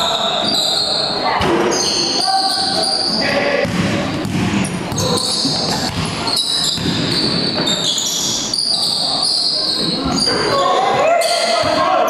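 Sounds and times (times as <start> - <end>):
shoe squeaks: 0.0 - 3.4, 4.6 - 11.6
crowd voices: 0.0 - 12.0
basketball bouncing on court: 3.6 - 8.4.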